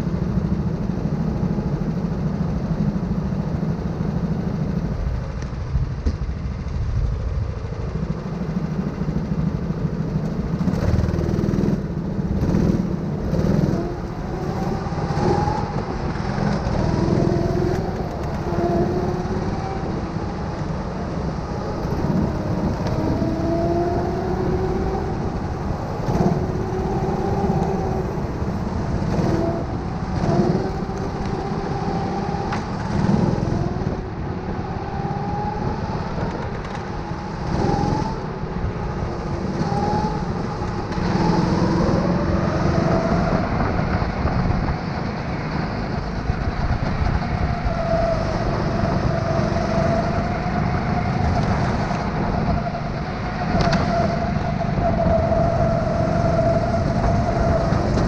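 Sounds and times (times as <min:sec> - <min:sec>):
nearby kart motors: 0:00.0 - 0:58.0
kart motor revving: 0:35.6 - 0:44.0.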